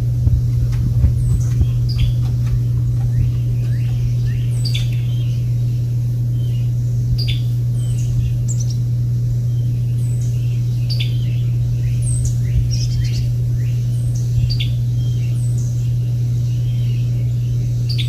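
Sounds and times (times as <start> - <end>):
loud low hum: 0.0 - 18.0
small birds chirping: 0.0 - 18.0.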